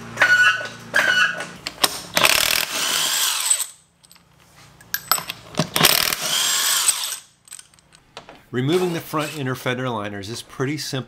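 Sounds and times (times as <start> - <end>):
power wrench whirring: 0.2 - 3.8, 5.1 - 7.8, 8.7 - 9.4.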